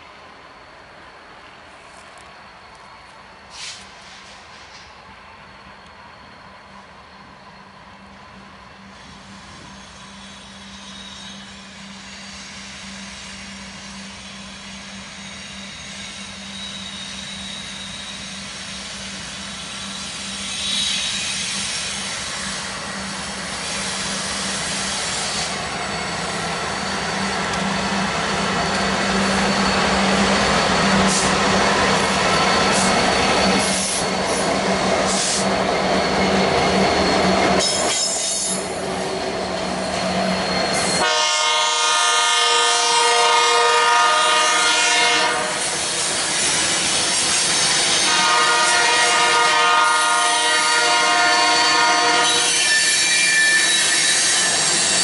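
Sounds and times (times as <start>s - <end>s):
train wheels rolling: 0.0s - 41.5s, 44.3s - 50.2s, 50.8s - 55.0s
diesel train engine drone: 0.0s - 55.0s
high wheel squeal: 8.9s - 41.4s, 44.6s - 55.0s.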